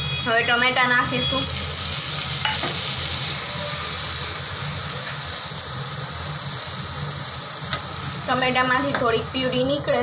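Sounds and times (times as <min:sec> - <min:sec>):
vegetables sizzling in oil: 0:00.0 - 0:10.0.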